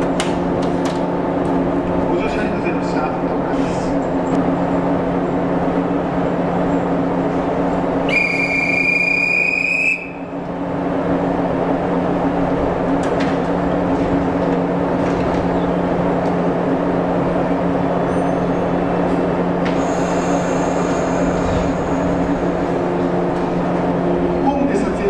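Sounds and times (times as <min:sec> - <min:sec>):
electric train humming: 0:00.0 - 0:25.0
broad rumbling noise: 0:10.0 - 0:25.0.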